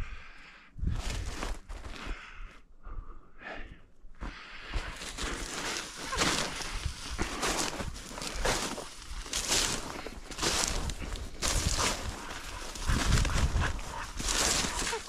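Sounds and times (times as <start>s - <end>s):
person breathing: 0.0s - 15.0s
footsteps in dry brush: 4.2s - 15.0s.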